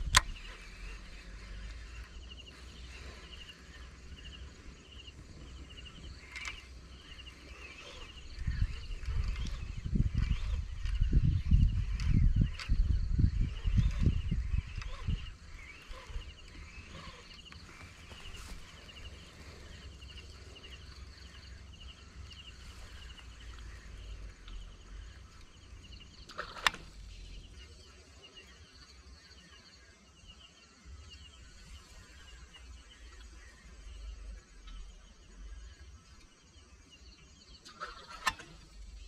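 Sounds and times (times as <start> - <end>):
sharp click: 0.0 - 0.6, 26.3 - 27.0
wind rumbling on microphone: 0.0 - 27.8.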